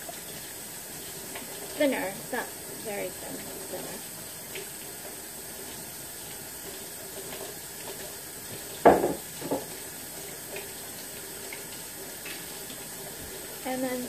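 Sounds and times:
bottles knocking on counter: 0:08.8 - 0:09.7.

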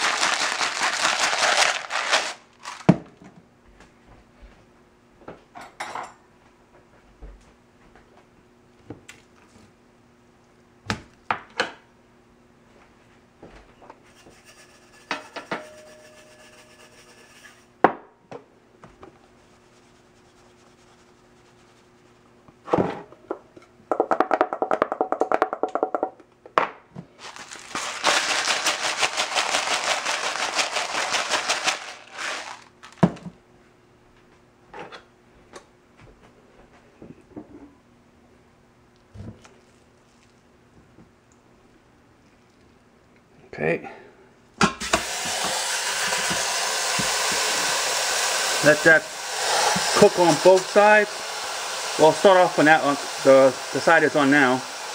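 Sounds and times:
spice shakers rattling: 0:00.0 - 0:02.9, 0:27.2 - 0:32.8.

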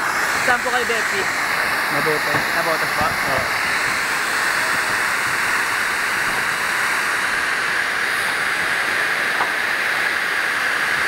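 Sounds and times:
fire hose water jet spraying: 0:00.0 - 0:11.0.

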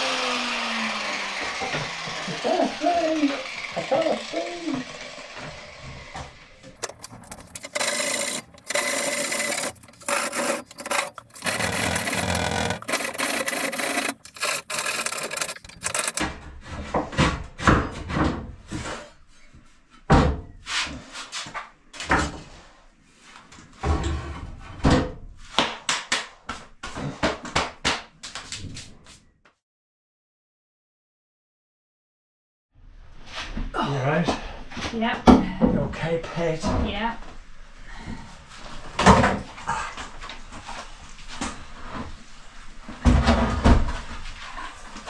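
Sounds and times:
angle grinder cutting stone: 0:00.0 - 0:16.2.

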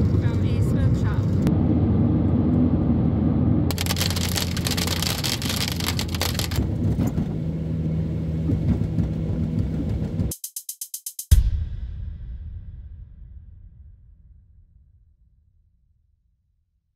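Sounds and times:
engine and tyre rumble: 0:00.0 - 0:10.3.

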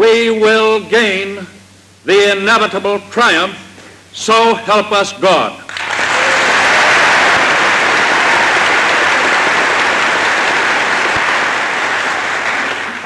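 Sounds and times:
large audience applauding: 0:05.7 - 0:13.0.

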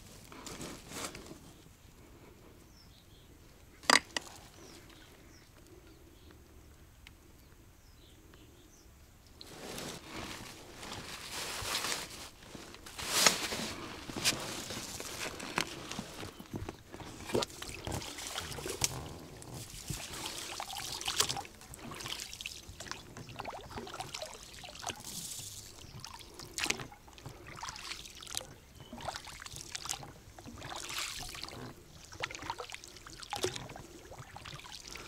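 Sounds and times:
rustling and handling noise: 0:00.0 - 0:01.8, 0:09.4 - 0:22.1
faint bird chirps: 0:04.4 - 0:06.6.

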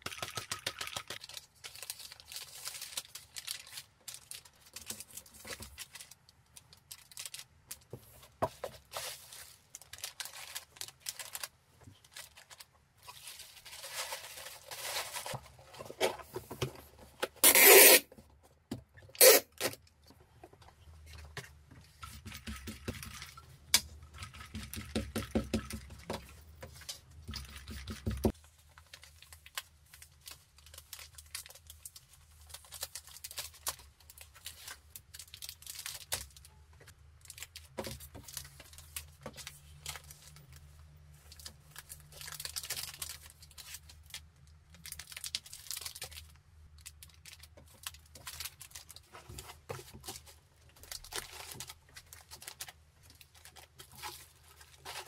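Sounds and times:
plastic packaging crinkling: 0:00.6 - 0:16.3, 0:28.3 - 0:36.5, 0:37.2 - 0:55.0.

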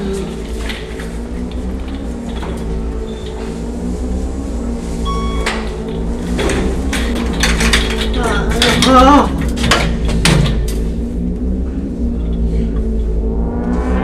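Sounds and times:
steady low hum: 0:00.0 - 0:14.0
short wavering pitched sound: 0:11.8 - 0:14.0.

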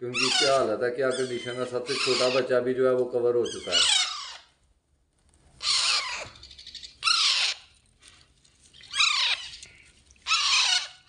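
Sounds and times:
parakeet chicks squawking: 0:00.1 - 0:02.6, 0:03.4 - 0:04.6, 0:05.6 - 0:07.8, 0:08.8 - 0:11.0.

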